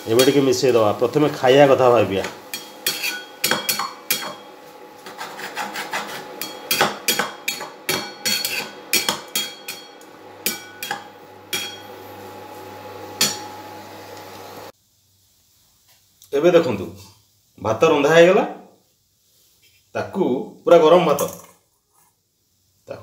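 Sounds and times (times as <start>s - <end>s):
steady hum: 0.0s - 14.7s
spatula scraping metal pan: 2.1s - 12.0s.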